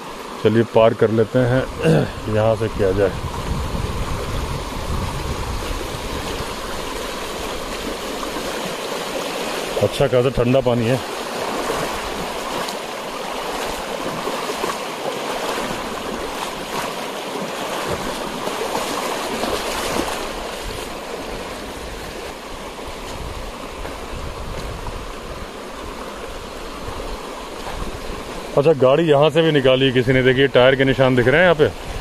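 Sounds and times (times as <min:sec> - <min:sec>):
person wading through water: 0:01.4 - 0:28.7.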